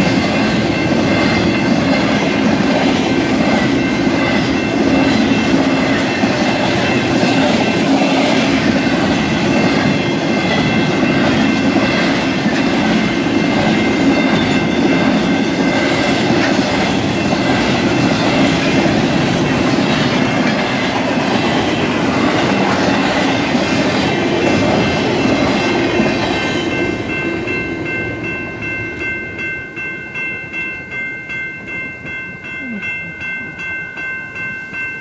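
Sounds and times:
wheels clacking over rails: 0.0s - 27.2s
freight train rattling past: 0.0s - 31.0s
crossing bells ringing: 0.0s - 35.0s.

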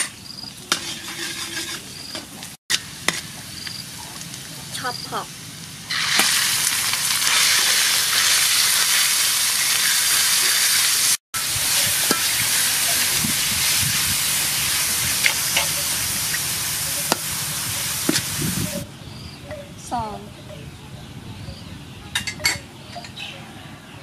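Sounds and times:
meat sizzling in a pan: 2.7s - 18.8s.

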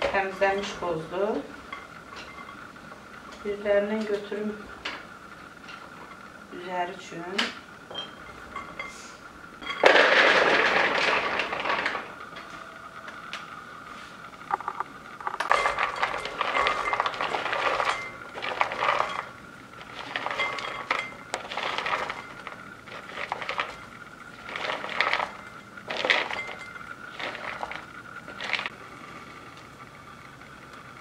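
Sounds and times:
nuts rattling into a dish: 9.8s - 12.2s, 15.5s - 28.7s.

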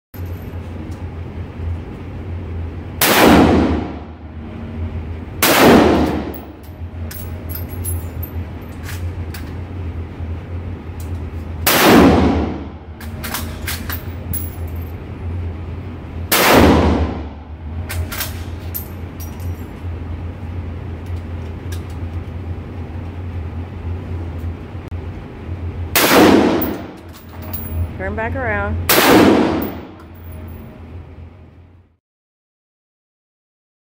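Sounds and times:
steady low hum: 0.2s - 32.0s
rifle shots echoing: 5.4s - 6.4s, 11.7s - 12.7s, 16.3s - 17.3s, 26.0s - 27.0s, 28.9s - 30.0s.

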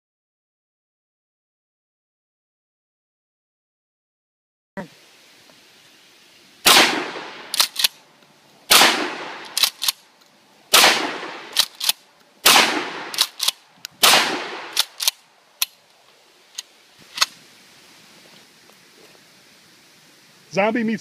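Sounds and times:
shotgun firing: 6.6s - 7.9s, 8.7s - 9.9s, 10.7s - 15.2s
shotgun pump racking clicks: 7.5s - 8.0s, 9.4s - 10.0s, 11.5s - 12.0s, 13.1s - 14.0s, 14.7s - 15.8s.

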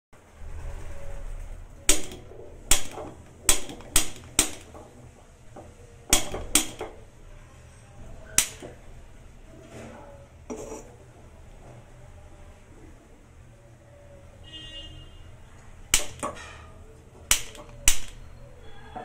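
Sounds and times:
spark lighter snapping: 8.4s - 8.6s, 17.3s - 18.2s.

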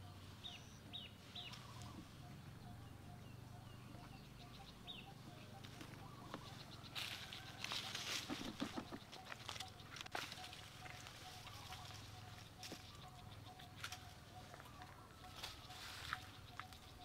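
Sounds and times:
high bird chirps: 8.6s - 17.0s.

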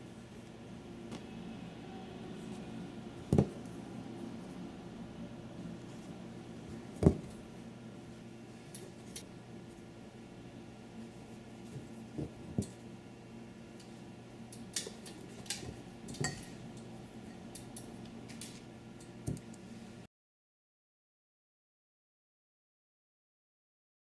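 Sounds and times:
low hum: 0.0s - 14.5s.

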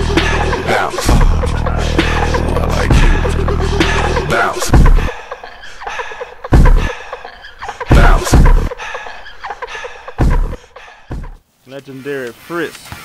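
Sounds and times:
deep bass hits: 0.0s - 5.1s, 7.9s - 8.7s
hip-hop beat: 0.0s - 11.4s.

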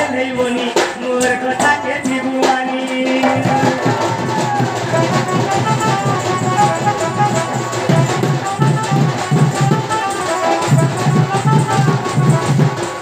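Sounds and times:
barrel drum beating: 0.0s - 13.0s
quick-note folk melody: 4.6s - 13.0s.

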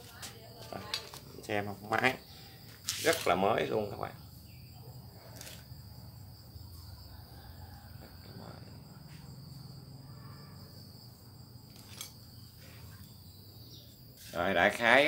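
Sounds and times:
high-pitched insect trill: 0.0s - 15.0s.

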